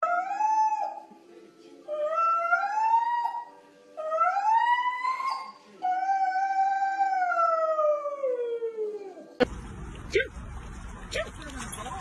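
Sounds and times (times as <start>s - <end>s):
husky howling: 1.9s - 9.4s.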